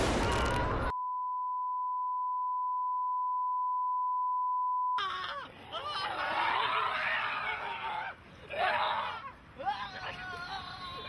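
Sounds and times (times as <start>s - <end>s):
loud burst of noise: 0.0s - 0.9s.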